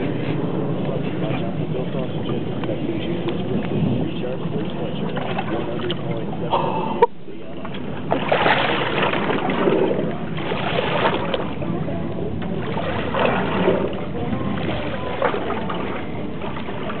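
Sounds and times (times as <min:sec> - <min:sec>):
water sloshing against boat: 0:00.0 - 0:17.0
fish splashing at surface: 0:08.0 - 0:11.6, 0:12.4 - 0:17.0.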